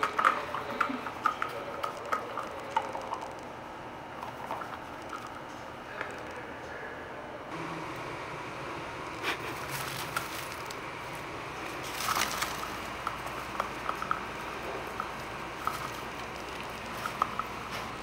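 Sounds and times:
wood chips crackling and rustling: 0:09.3 - 0:18.0.

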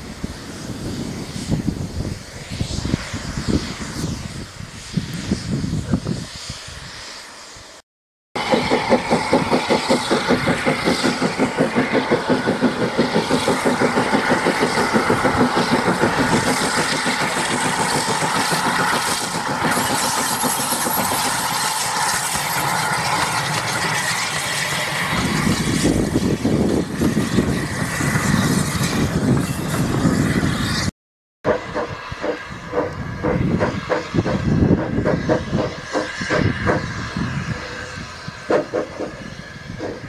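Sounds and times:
carriages rumbling on rails: 0:08.4 - 0:30.9, 0:31.5 - 0:40.0
steam locomotive chuffing: 0:08.4 - 0:30.9, 0:31.5 - 0:40.0.

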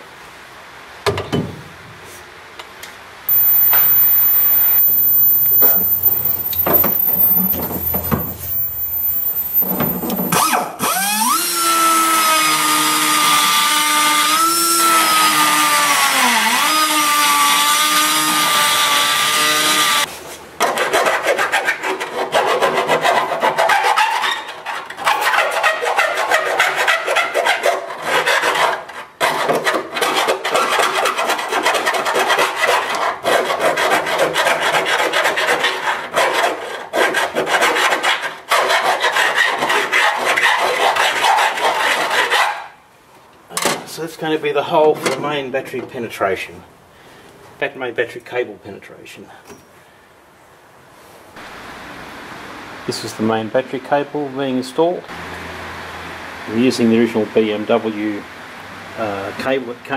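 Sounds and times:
hand file rasping: 0:03.3 - 0:10.3, 0:20.8 - 0:42.4.

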